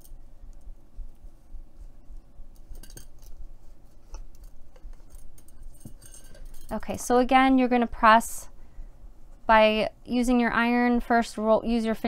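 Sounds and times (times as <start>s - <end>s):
light metallic clinks: 2.6s - 3.4s, 4.4s - 6.9s.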